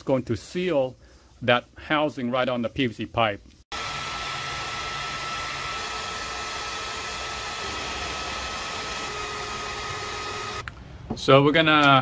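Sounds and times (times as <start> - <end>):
heat gun fan blowing: 3.7 - 10.6.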